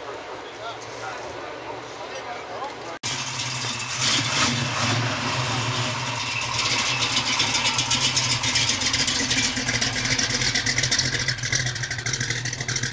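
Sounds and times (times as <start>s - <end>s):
truck engine idling: 3.0s - 12.9s.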